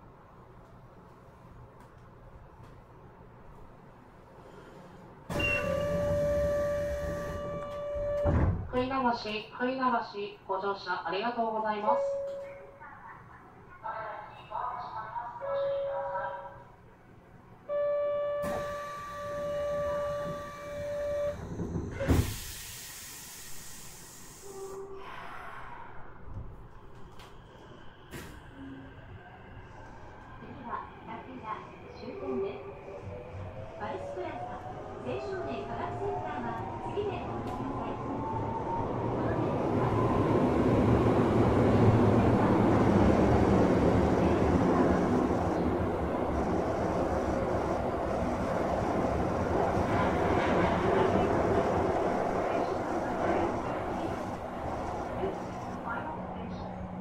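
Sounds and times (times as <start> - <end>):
door-closing buzzer tone: 5.3 - 8.6.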